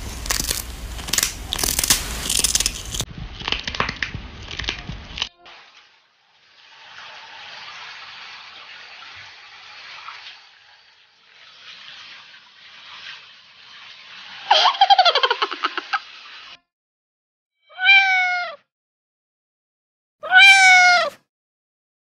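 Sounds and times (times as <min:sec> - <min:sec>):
shower water splashing in bathtub: 0:00.0 - 0:16.6
cat crying in rapid pulses: 0:17.6 - 0:18.6, 0:20.2 - 0:21.2.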